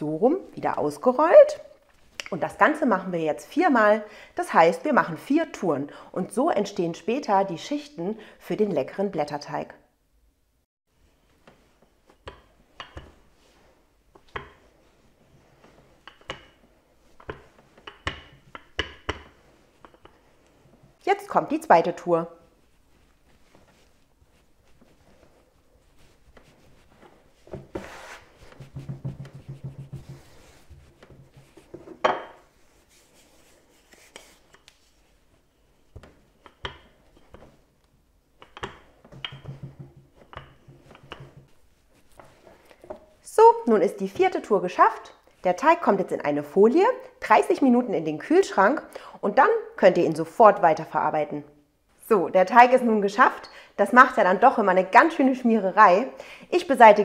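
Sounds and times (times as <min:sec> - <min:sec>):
rolling pin rolling dough: 0:11.0 - 0:43.2
rolling pin knocking: 0:12.0 - 0:13.2, 0:14.1 - 0:14.7, 0:15.6 - 0:20.2, 0:28.4 - 0:32.4, 0:36.0 - 0:37.6, 0:38.4 - 0:41.6.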